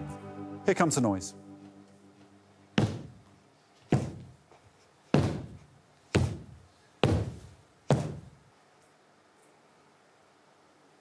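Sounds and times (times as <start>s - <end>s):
heavy high-heeled footsteps on stage: 2.8s - 8.4s.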